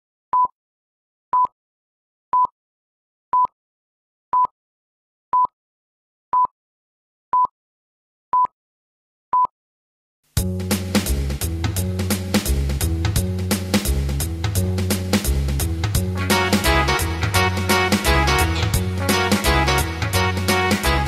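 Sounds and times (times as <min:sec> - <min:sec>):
band with guitar and drums: 0:10.6 - 0:21.0.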